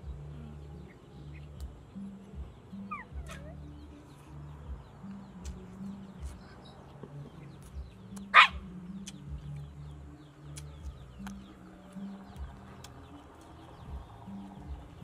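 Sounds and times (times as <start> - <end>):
birds chirping: 0.0 - 15.0
faint background music: 0.0 - 15.0
dog barking: 8.3 - 8.7.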